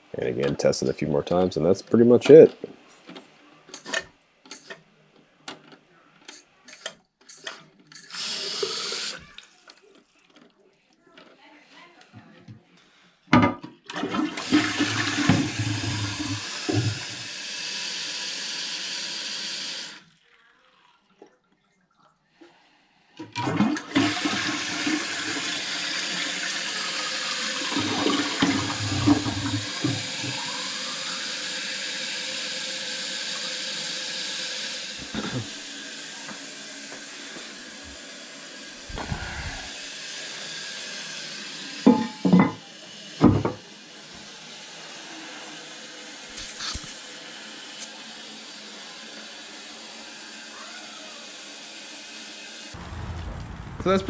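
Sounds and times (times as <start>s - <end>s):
toilet flushing: 8.0s - 9.3s, 13.8s - 20.0s, 23.2s - 50.3s
toilet tank refilling hiss: 8.1s - 9.3s, 13.9s - 20.0s, 23.2s - 50.5s.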